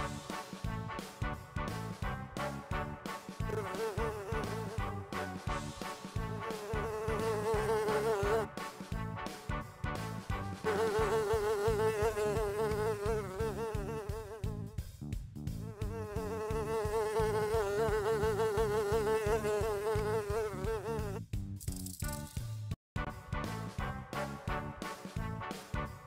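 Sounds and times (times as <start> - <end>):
housefly buzzing: 3.5 - 4.9, 5.8 - 8.5, 10.6 - 14.5, 15.7 - 21.2.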